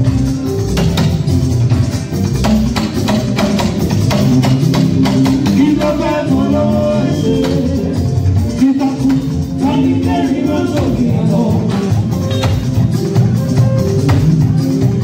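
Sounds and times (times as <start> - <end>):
live band playing: 0.0 - 15.0
man singing into a microphone: 5.5 - 12.3.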